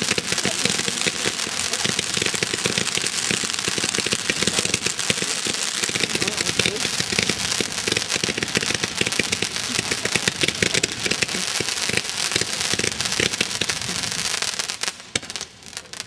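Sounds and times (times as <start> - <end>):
fireworks crackling: 0.0 - 16.0.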